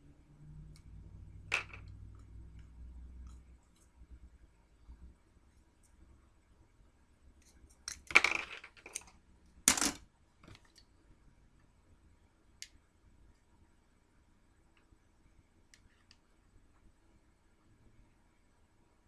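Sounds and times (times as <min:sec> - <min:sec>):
small objects clattering on table: 0:01.5 - 0:02.0, 0:07.9 - 0:10.7.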